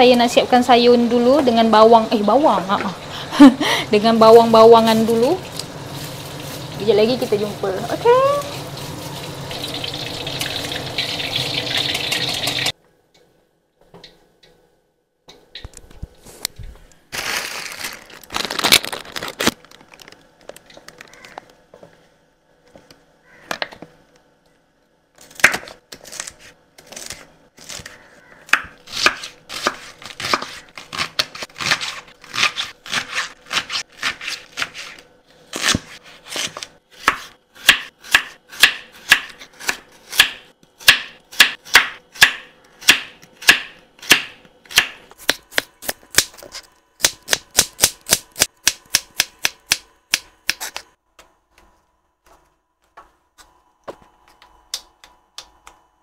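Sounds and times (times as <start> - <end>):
knife chopping vegetables: 25.2 - 50.9.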